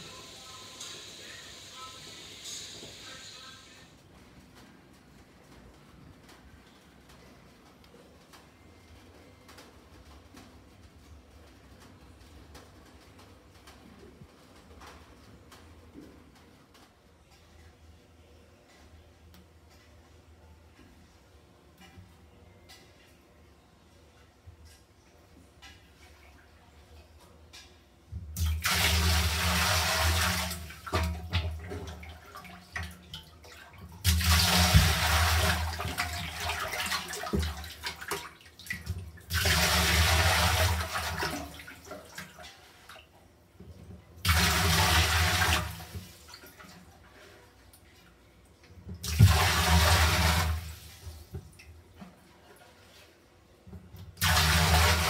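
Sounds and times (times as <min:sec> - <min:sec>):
water gushing onto tiled floor: 0:28.4 - 0:42.4, 0:44.2 - 0:46.5, 0:49.0 - 0:51.1, 0:54.2 - 0:55.0.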